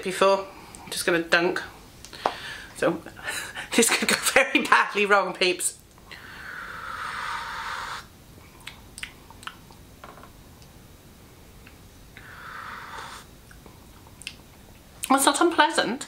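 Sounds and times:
mouth clicks: 6.8 - 9.7.

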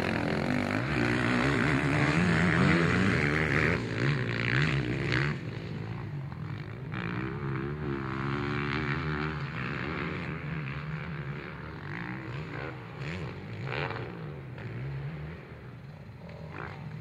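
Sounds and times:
dirt bike engine revving: 0.0 - 6.1.

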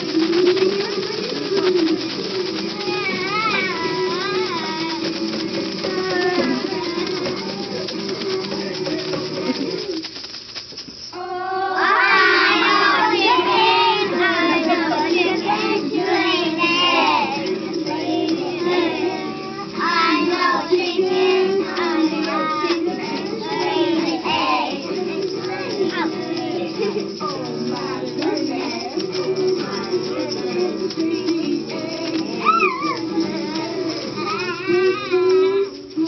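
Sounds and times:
children singing together: 11.2 - 35.9.

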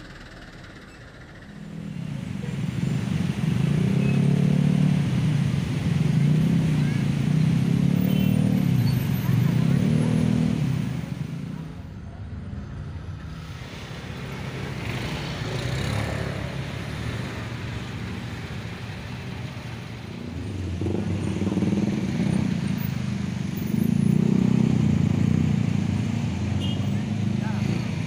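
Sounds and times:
traffic engines humming: 0.0 - 28.0.

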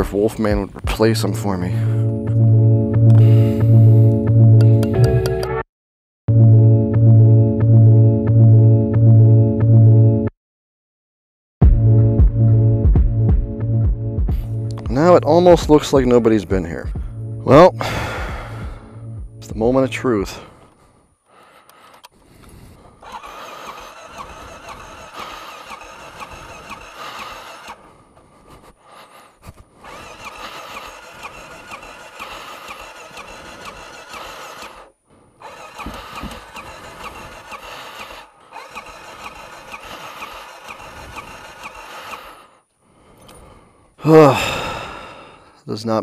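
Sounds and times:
motorcycle starter cranking engine: 21.8 - 28.6, 29.4 - 42.6.

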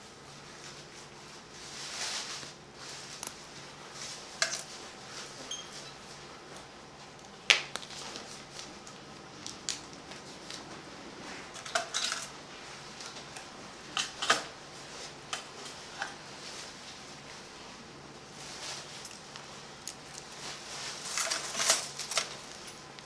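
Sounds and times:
metal surgical instruments clinking: 11.6 - 12.3, 21.0 - 22.8.

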